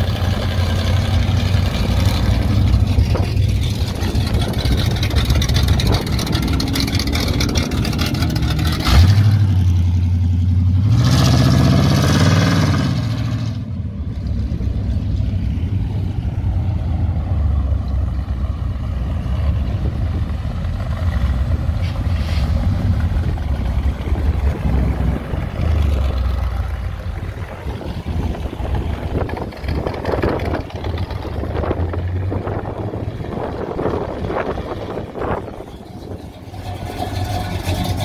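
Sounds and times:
loud engine revving: 0.0 - 13.7
car engines driving past: 0.0 - 38.0.

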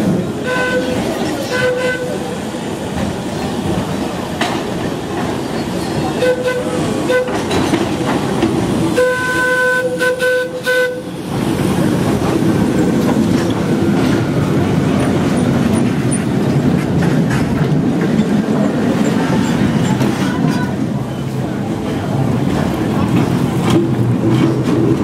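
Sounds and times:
tram cars rumbling on rails: 0.0 - 25.0
tram horn: 0.4 - 2.4, 6.2 - 7.6, 8.9 - 11.2.

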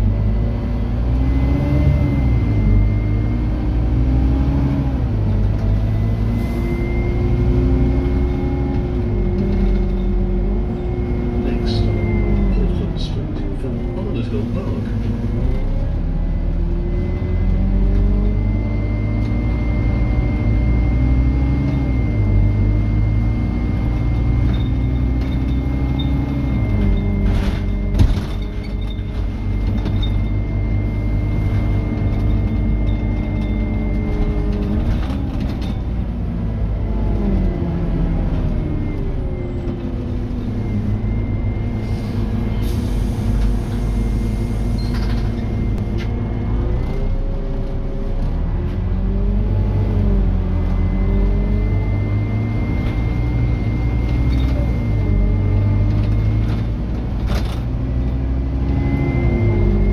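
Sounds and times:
bus diesel engine working hard: 0.0 - 59.9
clunk: 24.4 - 30.3.

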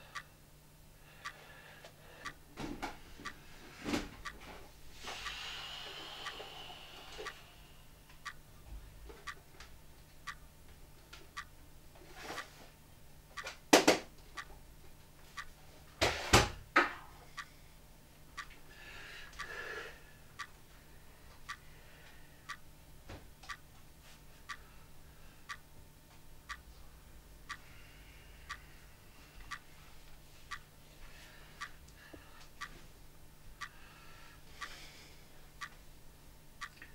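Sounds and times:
clock ticking: 1.2 - 1.4, 4.2 - 4.4, 5.2 - 6.6, 7.2 - 8.6, 9.2 - 10.6, 11.2 - 11.6, 12.2 - 12.6, 13.3 - 13.6, 14.3 - 14.6, 15.3 - 15.6, 18.3 - 18.7, 19.3 - 19.6, 21.4 - 21.7, 22.4 - 22.7, 23.4 - 23.7, 24.4 - 24.7, 25.4 - 25.7, 26.4 - 26.8, 27.4 - 27.8, 28.4 - 28.8, 29.4 - 29.7, 31.5 - 32.8, 33.5 - 33.8, 35.6 - 35.8, 36.6 - 36.9.

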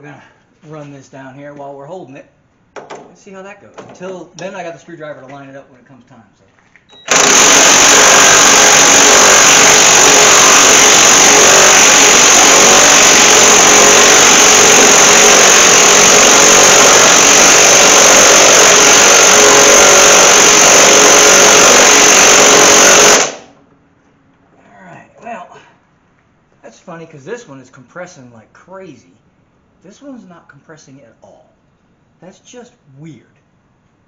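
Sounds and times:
impact wrench running: 7.0 - 23.6.

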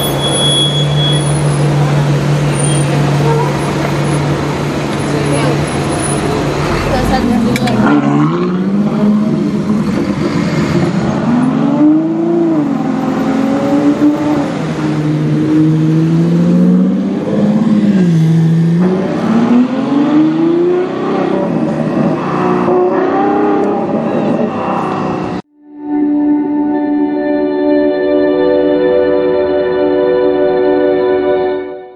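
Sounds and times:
car engine revving: 0.0 - 25.4.

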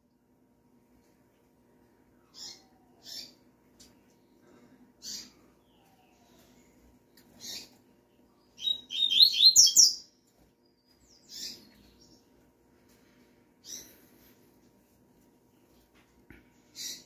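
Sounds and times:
fast high bird song: 2.2 - 3.5, 5.0 - 12.4.

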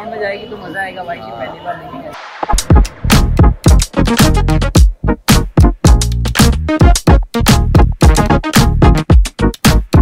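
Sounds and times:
electronic dance music: 2.2 - 10.0.

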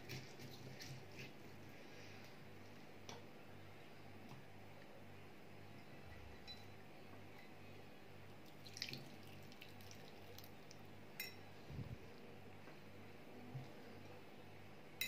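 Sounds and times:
low background hum: 0.0 - 15.0
juice dripping into glass bowl: 8.4 - 11.4.

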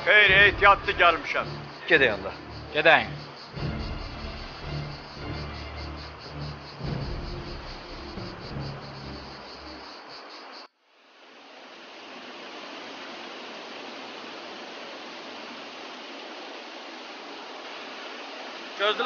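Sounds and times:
waterfall rushing: 0.0 - 9.8, 11.2 - 19.0
crickets chirping: 0.0 - 19.0
low droning tones: 0.3 - 9.7.

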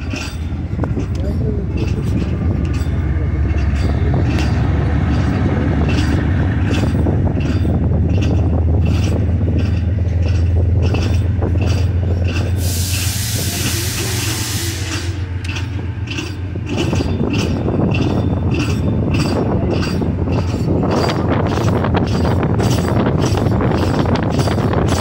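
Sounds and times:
train rumbling on track: 0.0 - 25.0
wheels clicking over rail joints: 0.0 - 25.0
burst of hiss: 12.6 - 15.0.

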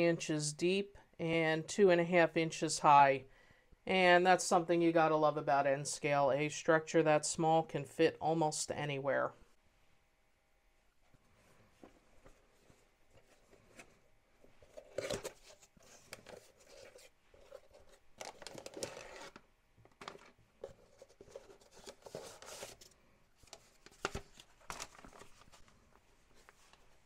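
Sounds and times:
plastic bag rustling and crinkling: 14.6 - 27.0.

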